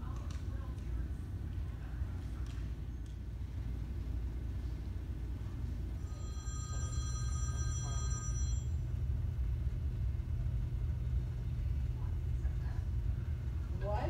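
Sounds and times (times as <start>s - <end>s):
phone ringing: 6.0s - 8.9s.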